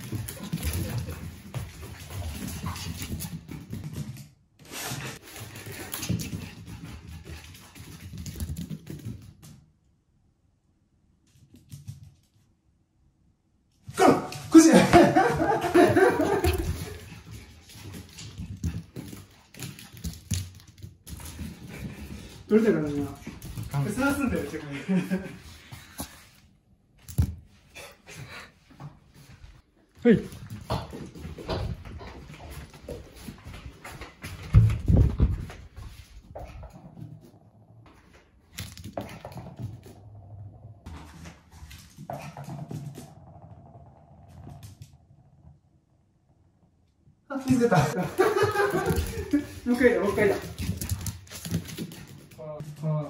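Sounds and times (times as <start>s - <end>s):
person's footsteps: 28.6s - 40.1s, 47.9s - 52.8s.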